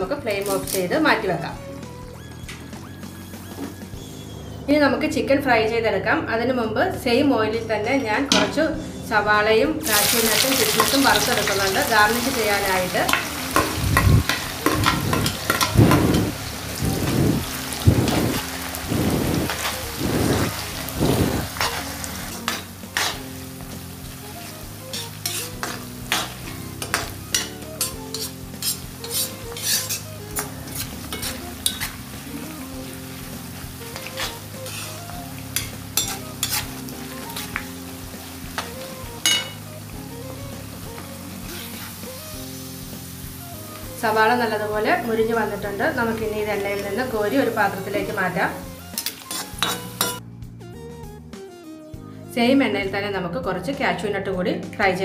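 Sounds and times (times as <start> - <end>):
oil crackling: 9.8 - 44.1
onions sizzling in hot oil: 9.8 - 50.2
metal skimmer stirring in wok: 13.1 - 16.8, 19.5 - 23.3, 24.9 - 32.1, 33.9 - 37.6, 49.0 - 50.2.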